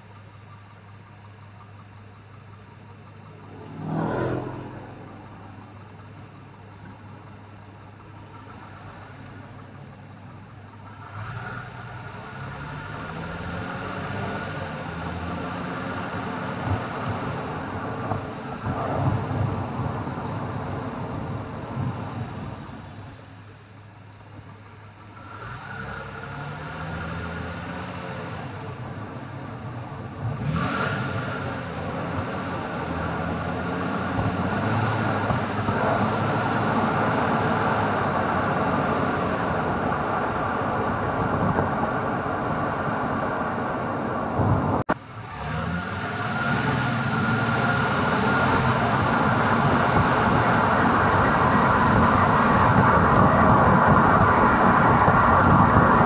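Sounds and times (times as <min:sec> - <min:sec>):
tyres rolling on pavement: 0:00.0 - 0:56.0
car engine note rising: 0:03.1 - 0:06.5.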